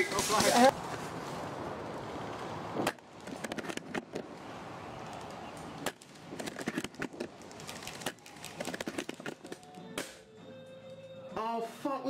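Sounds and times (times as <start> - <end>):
sharp clicks and cracks: 5.0 - 10.2.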